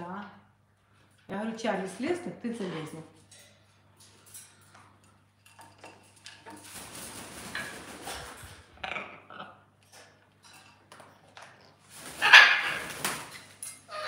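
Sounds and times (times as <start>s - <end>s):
soft parrot sounds: 12.1s - 13.0s, 13.7s - 14.0s.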